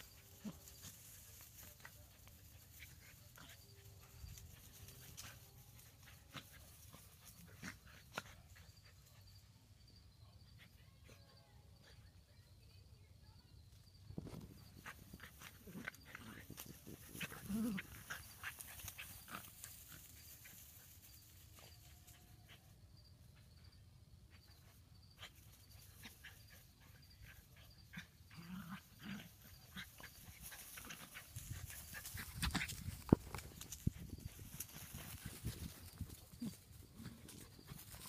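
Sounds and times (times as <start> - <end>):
paws pattering on grass: 0.0 - 8.2, 14.4 - 22.6, 29.4 - 38.0
dogs growling playfully: 15.2 - 19.6, 27.8 - 32.8.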